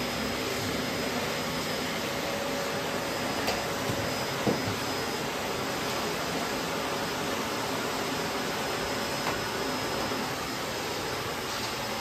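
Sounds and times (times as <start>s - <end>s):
vacuum cleaner running: 0.0s - 12.0s.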